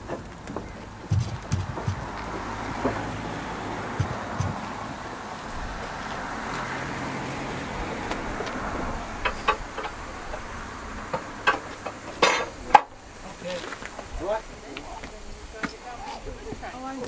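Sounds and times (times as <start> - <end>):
turntable rushing rumble: 0.0 - 14.2
sharp metallic clanks: 11.1 - 13.0.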